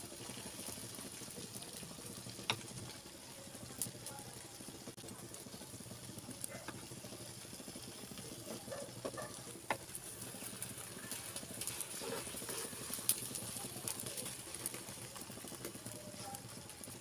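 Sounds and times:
metal spatula scraping frying pan: 0:11.6 - 0:13.0.

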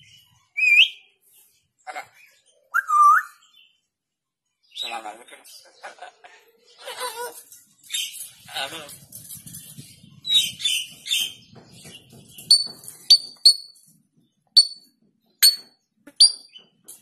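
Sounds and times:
soft noisy parrot sounds: 0:04.7 - 0:09.6.

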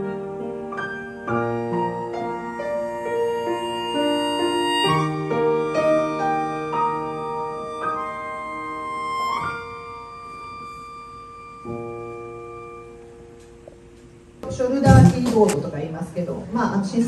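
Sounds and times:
melodica playing a melody: 0:01.4 - 0:13.2.

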